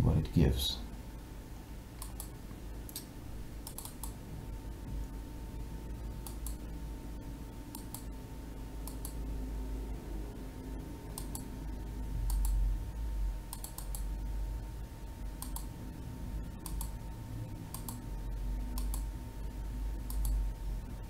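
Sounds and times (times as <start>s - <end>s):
low steady hum: 0.0s - 21.0s
light computer clicks: 2.0s - 4.2s, 6.2s - 6.6s, 7.7s - 8.1s, 8.8s - 9.2s, 11.1s - 11.5s, 12.2s - 12.6s, 13.5s - 14.1s, 15.4s - 15.7s, 16.6s - 17.0s, 17.7s - 18.0s, 18.7s - 19.1s, 20.0s - 20.4s.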